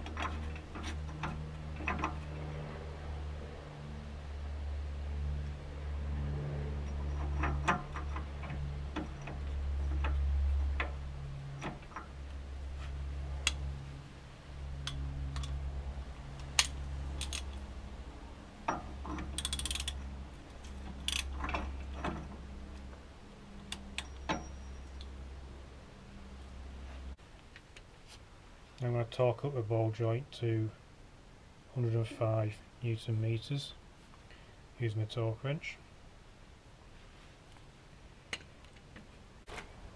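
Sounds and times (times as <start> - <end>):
low hum: 0.0 - 27.2
metallic clicks of hand tools: 13.4 - 13.7, 16.4 - 17.6, 18.7 - 20.1, 20.8 - 22.2.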